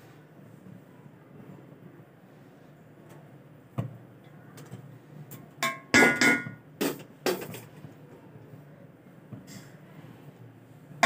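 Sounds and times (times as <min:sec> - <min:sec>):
metal spoon knocking on pot: 0:05.6 - 0:06.6.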